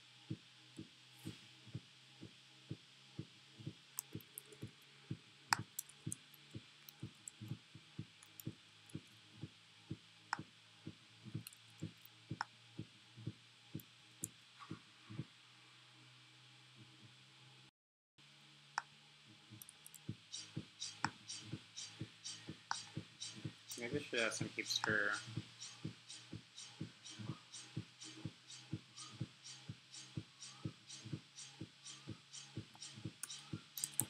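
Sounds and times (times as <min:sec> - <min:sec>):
faint low hum: 0:00.0 - 0:34.0
soft low thumps: 0:00.3 - 0:15.3, 0:19.4 - 0:34.0
sharp clicks: 0:19.6 - 0:34.0.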